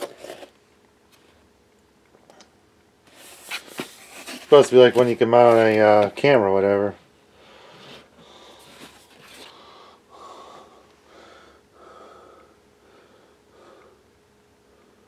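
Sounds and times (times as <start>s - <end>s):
man breathing: 7.3s - 15.0s.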